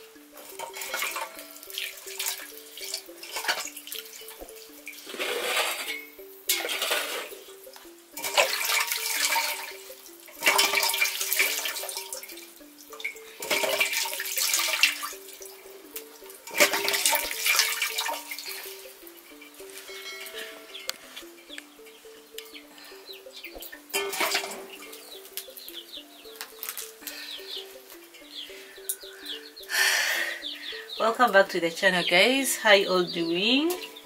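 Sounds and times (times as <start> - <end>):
background music: 0.0 - 34.0
water splashing in a metal basin: 0.4 - 7.5, 8.1 - 19.6, 23.2 - 27.1
water pouring off fish: 8.2 - 12.3, 13.4 - 15.3, 16.4 - 18.9.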